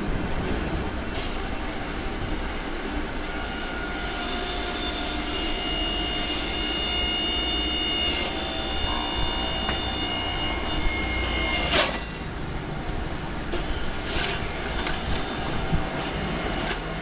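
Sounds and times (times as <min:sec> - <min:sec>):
thin high whine: 0:01.1 - 0:12.4
juice extractor motor hum: 0:04.6 - 0:17.0.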